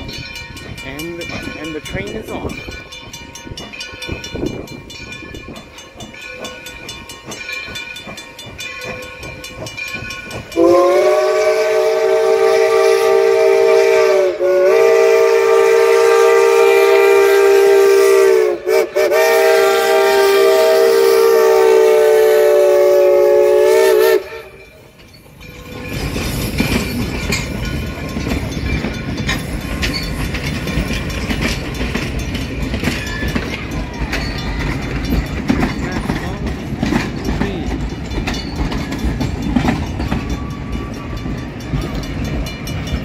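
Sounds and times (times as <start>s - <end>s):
train rumble and wheel clatter: 0.0s - 43.0s
steam locomotive whistle: 10.5s - 24.8s.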